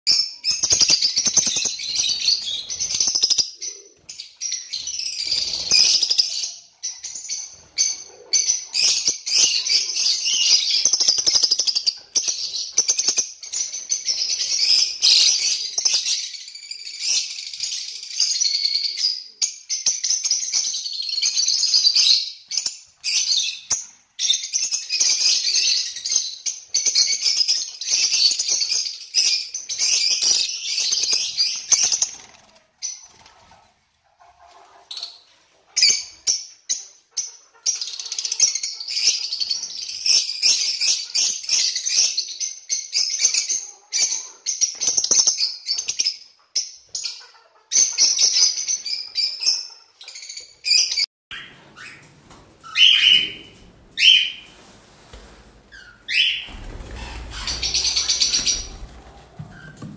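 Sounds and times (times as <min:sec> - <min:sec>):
lovebirds chattering: 0:55.8 - 0:59.9.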